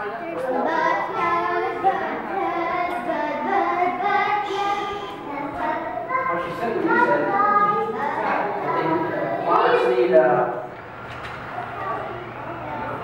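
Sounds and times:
child singing: 0.4s - 9.5s.

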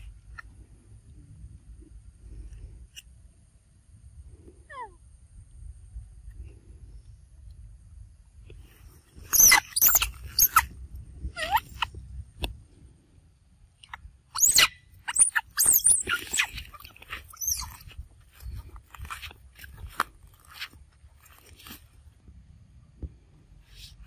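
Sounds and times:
young macaque squealing: 9.3s - 10.6s, 11.4s - 11.9s, 14.3s - 17.9s.

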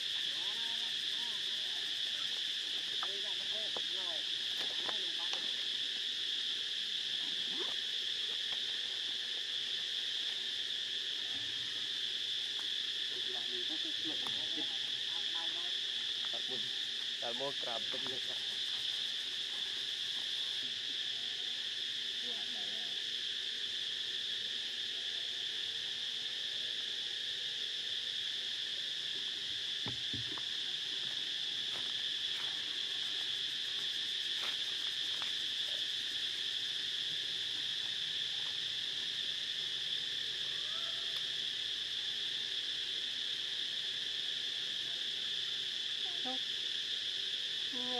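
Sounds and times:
insect chorus drone: 0.0s - 47.9s.

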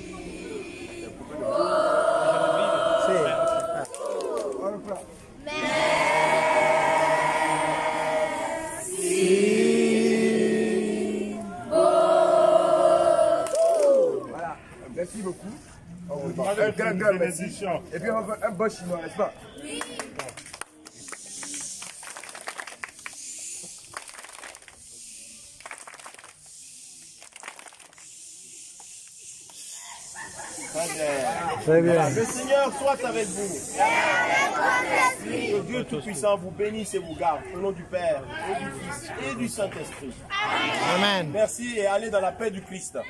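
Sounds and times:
children chanting: 0.0s - 3.9s, 5.5s - 13.6s, 29.7s - 35.7s
children clapping: 19.8s - 24.9s, 25.6s - 26.5s, 27.1s - 28.1s.

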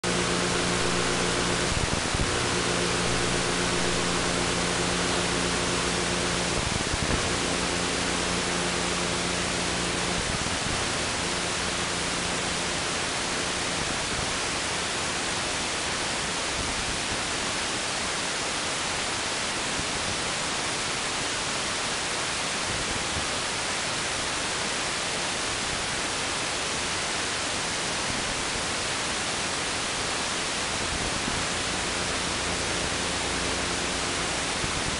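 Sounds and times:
low multi-tone hum: 0.0s - 18.5s, 30.3s - 34.9s
static hiss: 0.0s - 34.9s.

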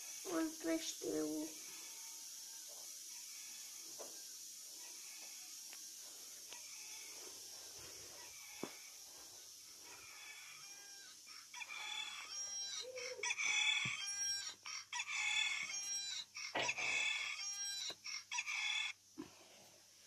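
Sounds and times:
rooster-crow alarm tone: 1.5s - 5.6s, 6.5s - 7.3s, 8.2s - 9.1s, 9.7s - 19.0s.

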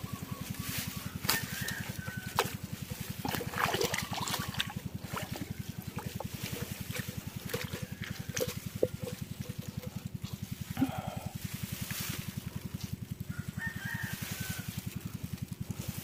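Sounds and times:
small boat engine running: 0.0s - 16.0s
water noise: 1.6s - 11.0s.

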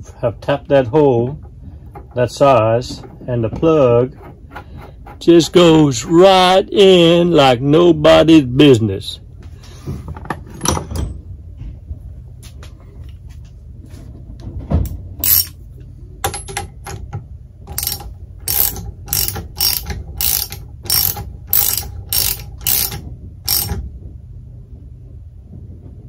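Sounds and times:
ratchet wrench clicking: 15.2s - 15.6s, 17.7s - 23.8s.

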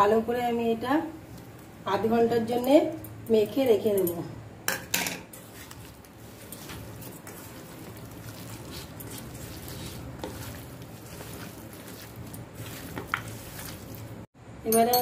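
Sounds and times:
hands squelching raw chicken: 5.5s - 14.3s.

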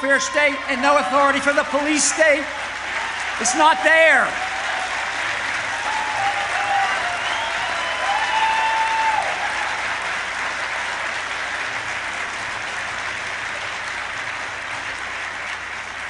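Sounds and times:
audience applauding: 0.0s - 16.0s
person cheering: 3.4s - 5.1s, 5.7s - 9.8s.

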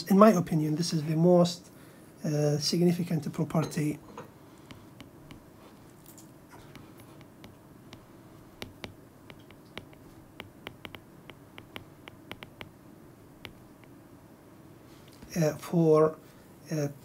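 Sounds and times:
stylus tapping on glass screen: 4.7s - 5.5s, 6.5s - 12.8s, 13.4s - 14.0s.

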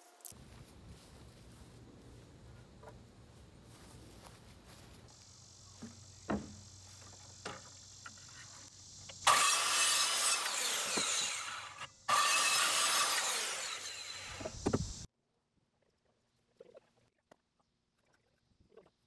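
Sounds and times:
circular saw cutting wood: 8.0s - 15.1s.

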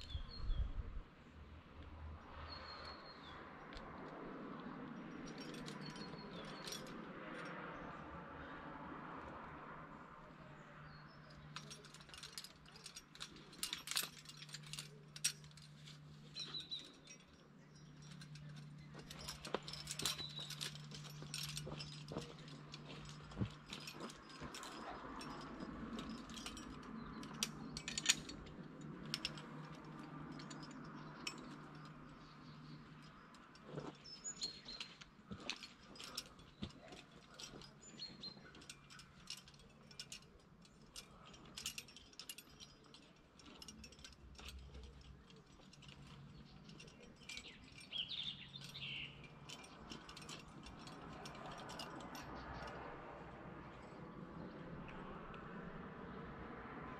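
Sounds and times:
metallic clicks of climbing hardware: 11.2s - 55.8s.

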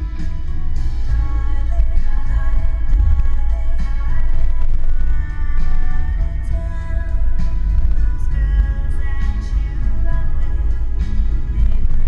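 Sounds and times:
background music with heavy bass: 0.0s - 12.0s.

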